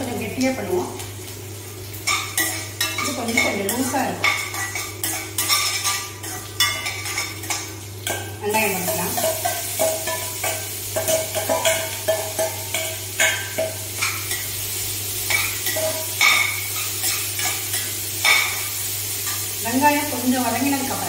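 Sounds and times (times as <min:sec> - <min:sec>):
onions frying in hot oil: 0:00.0 - 0:21.0
spatula scraping a pan: 0:02.1 - 0:07.7.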